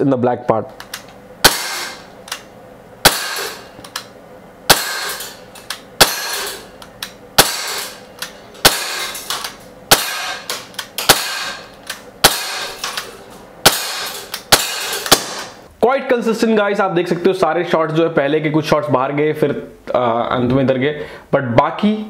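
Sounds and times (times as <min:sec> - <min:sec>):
air pistol shots: 0:01.4 - 0:02.1, 0:03.0 - 0:03.7, 0:04.7 - 0:05.4, 0:06.0 - 0:06.6, 0:07.4 - 0:08.0, 0:08.6 - 0:15.6.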